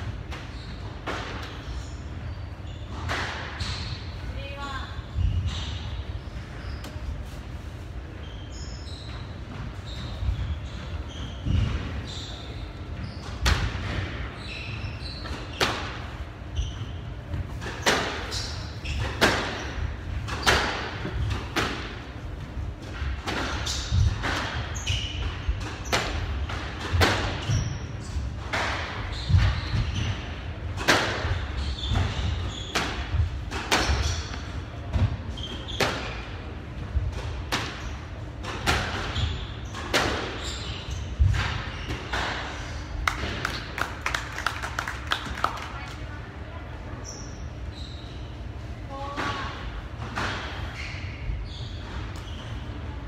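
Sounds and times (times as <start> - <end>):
shoes squeaking on wooden floor: 8.2 - 13.4.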